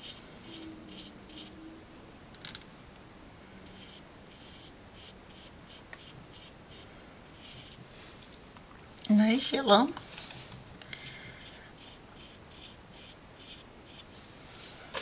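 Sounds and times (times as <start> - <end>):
brush strokes on paper: 0.0 - 1.7, 3.6 - 8.2, 11.0 - 15.0.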